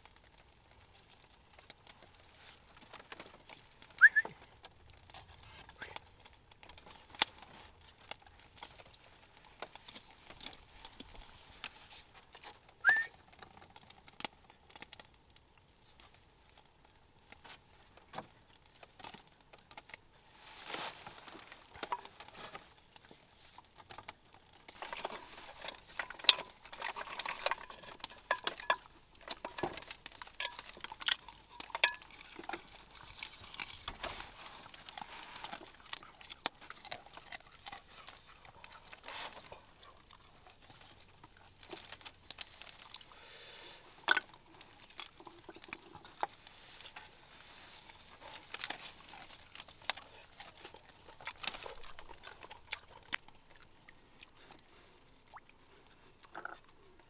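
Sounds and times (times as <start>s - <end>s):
hands handling food and utensils: 20.6s - 43.1s.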